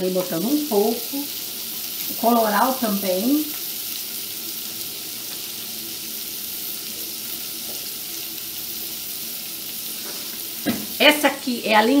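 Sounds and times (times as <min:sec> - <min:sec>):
onion and garlic sizzling: 0:00.0 - 0:12.0.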